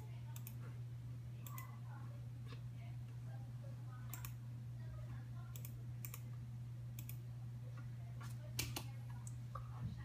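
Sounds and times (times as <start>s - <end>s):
computer mouse clicking: 0.0s - 0.6s, 1.4s - 1.7s, 4.1s - 4.4s, 5.5s - 6.2s, 7.0s - 7.2s
steady low hum: 0.0s - 10.0s.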